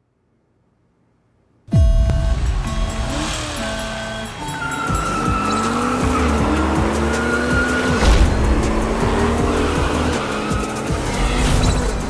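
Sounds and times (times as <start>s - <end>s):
music with deep bass: 1.7s - 12.0s
race car engines revving: 2.4s - 12.0s
tyres squealing: 3.3s - 12.0s
heavy thump: 8.0s - 10.4s.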